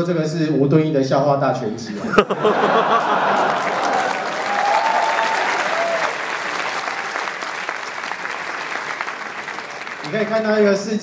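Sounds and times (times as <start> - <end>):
audience applauding: 2.1 - 10.8.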